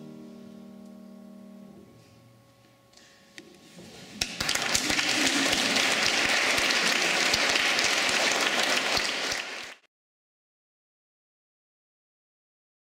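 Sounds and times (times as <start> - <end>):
audience applauding in a hall: 4.2 - 9.9.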